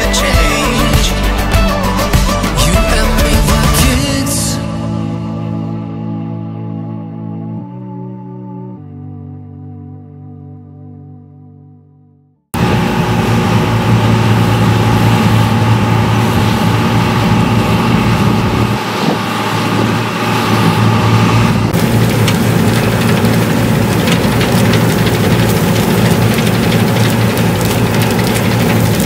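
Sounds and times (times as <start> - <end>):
combine harvester engine drone: 0.0 - 7.4, 12.6 - 29.0
threshing gear whine: 12.6 - 29.0.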